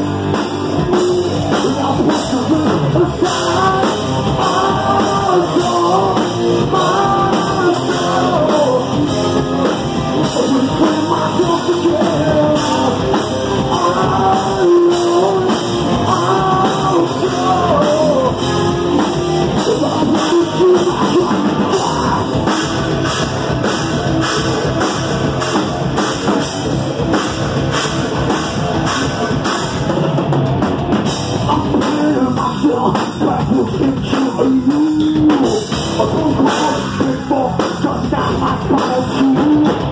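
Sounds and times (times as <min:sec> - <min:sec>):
hard rock band playing live: 0:00.0 - 0:39.9
man singing into a microphone: 0:00.7 - 0:22.5, 0:31.4 - 0:39.9.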